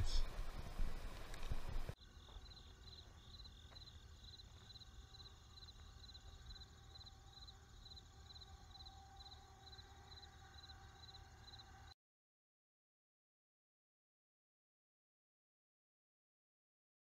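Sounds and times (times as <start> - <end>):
crickets chirping: 0.0 - 11.9.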